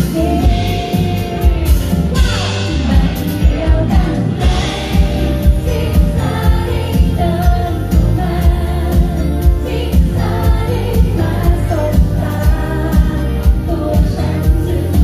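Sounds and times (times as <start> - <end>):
drums keeping a steady beat: 0.0 - 15.0
live pop band playing: 0.0 - 15.0
woman singing into a microphone: 0.0 - 15.0.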